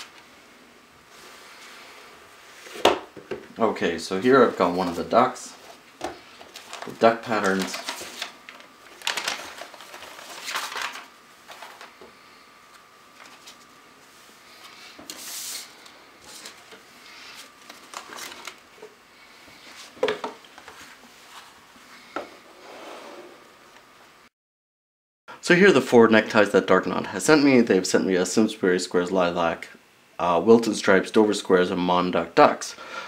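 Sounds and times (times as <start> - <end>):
tissue paper and card rustling: 4.2 - 12.0, 14.6 - 18.9.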